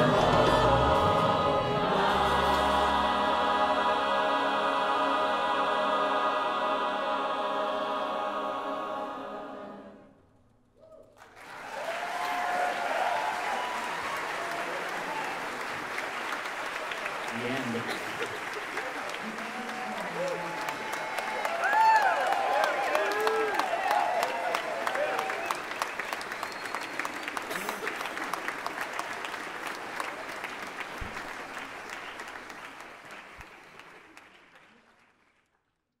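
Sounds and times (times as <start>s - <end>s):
crowd cheering: 0.0s - 6.3s, 10.8s - 35.2s
choir with orchestra holding chord: 0.0s - 10.2s
audience applause: 11.2s - 35.7s.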